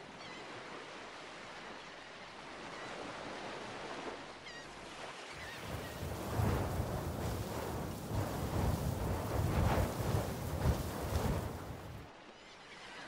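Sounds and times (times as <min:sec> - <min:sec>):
ocean surf: 0:05.0 - 0:12.1.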